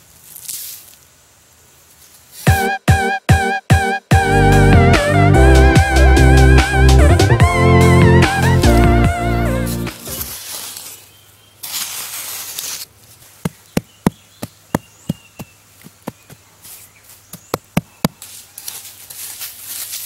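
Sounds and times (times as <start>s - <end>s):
trowel scraping soil: 0.2s - 1.0s, 9.6s - 12.9s, 18.2s - 20.0s.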